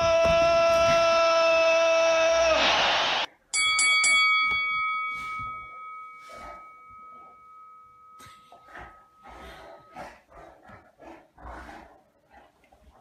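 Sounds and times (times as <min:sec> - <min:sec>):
boxing ring bell ringing: 0:03.5 - 0:10.0.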